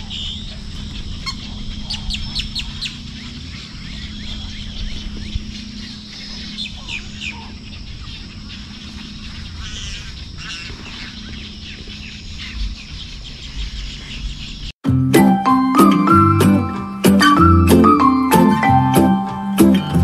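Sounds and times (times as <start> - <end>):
steady low hum: 0.0 - 14.7
bird trill: 0.0 - 20.0
birds chirping: 0.0 - 20.0.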